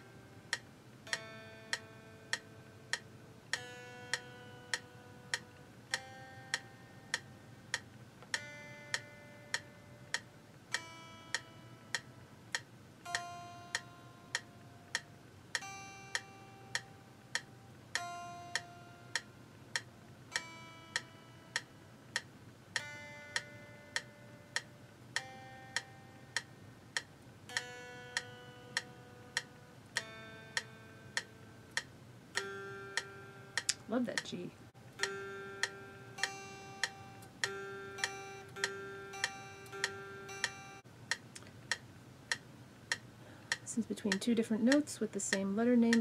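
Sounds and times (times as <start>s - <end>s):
metronome clicking: 0.0s - 46.0s
electric guitar notes: 15.6s - 19.5s, 27.5s - 40.8s.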